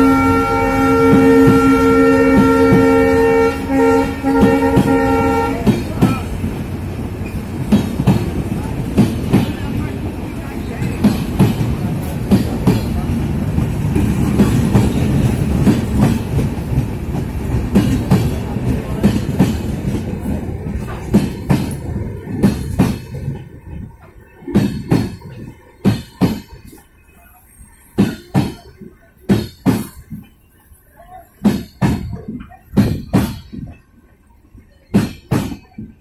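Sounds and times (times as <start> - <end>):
train wheels rumbling and clacking: 0.0 - 36.0.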